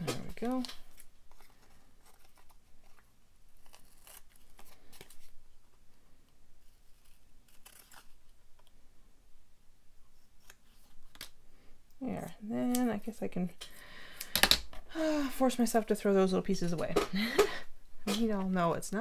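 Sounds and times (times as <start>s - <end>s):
scissors snipping paper: 3.6s - 5.2s, 6.9s - 8.2s.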